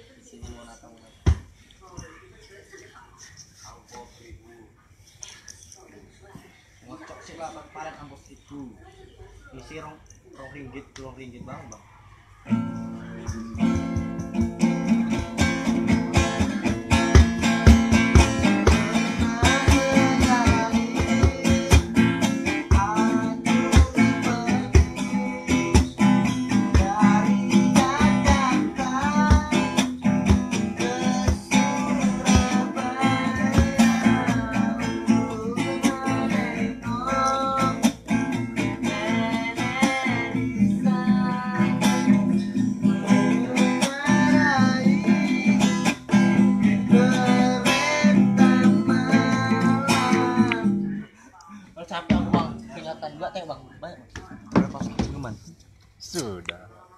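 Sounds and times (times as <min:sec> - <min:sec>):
acoustic guitar strumming: 0:12.4 - 0:51.2, 0:52.0 - 0:52.8
man singing: 0:14.6 - 0:51.4.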